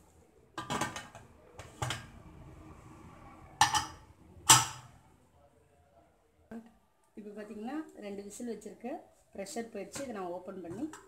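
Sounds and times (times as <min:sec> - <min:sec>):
pressure cooker lid clanking: 0:03.6 - 0:04.8.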